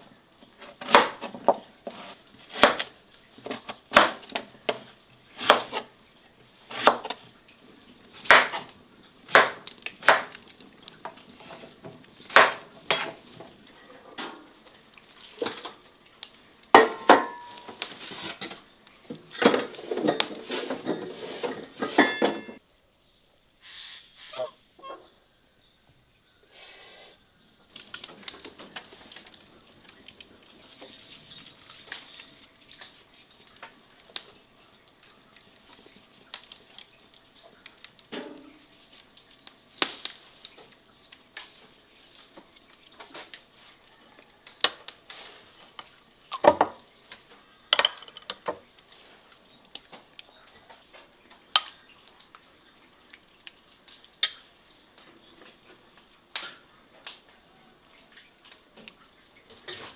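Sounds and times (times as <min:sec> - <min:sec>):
dishes and utensils clinking: 0:16.8 - 0:18.6, 0:19.4 - 0:22.6, 0:47.7 - 0:48.6.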